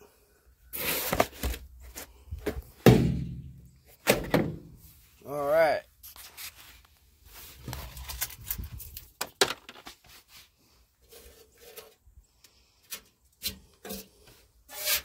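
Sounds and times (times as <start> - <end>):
clicks and rustles of handling: 6.0 - 10.3.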